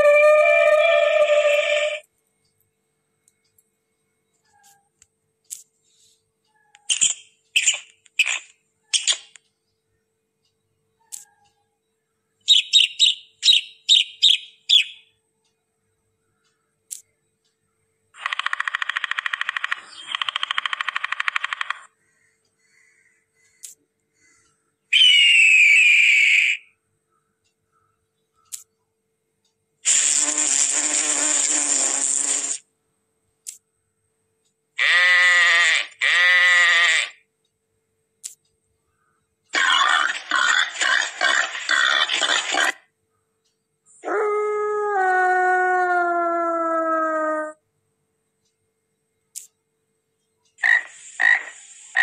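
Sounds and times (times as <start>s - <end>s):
sparrow chirping: 12.5s - 15.1s
wasp buzzing: 29.9s - 32.6s.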